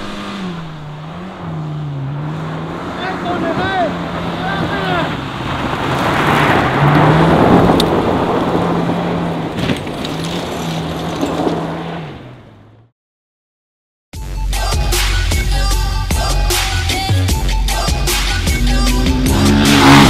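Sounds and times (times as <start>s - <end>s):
car engine running: 0.0s - 6.1s, 17.8s - 20.0s
grit spraying from tyres: 4.5s - 8.8s.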